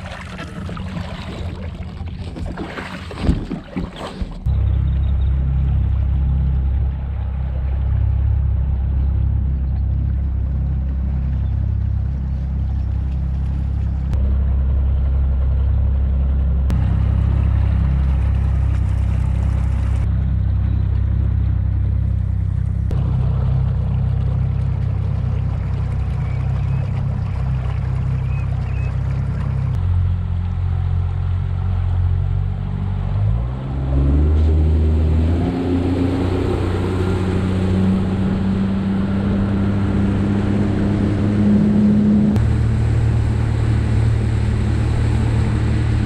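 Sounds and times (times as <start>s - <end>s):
water splashing: 0.0s - 4.7s, 16.7s - 20.1s, 22.1s - 29.8s, 33.9s - 46.0s
boat motor droning: 0.0s - 46.0s.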